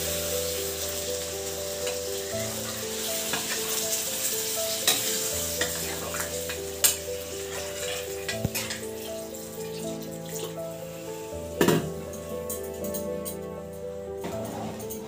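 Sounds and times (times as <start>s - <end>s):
water poured into sizzling gravy: 0.0s - 11.7s
background tune: 0.0s - 15.0s.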